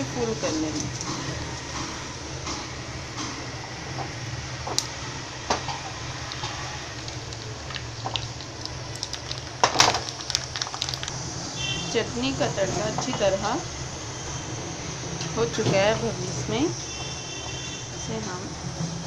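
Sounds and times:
seeds sizzling in hot oil: 3.7s - 12.5s.

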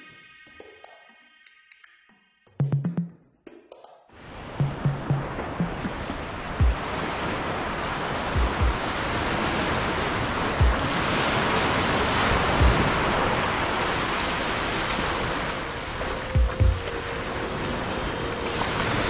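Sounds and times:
low thumps: 2.6s - 3.8s, 4.6s - 6.8s, 8.4s - 8.8s, 10.6s - 10.9s
small waves breaking on sand: 5.2s - 19.0s.

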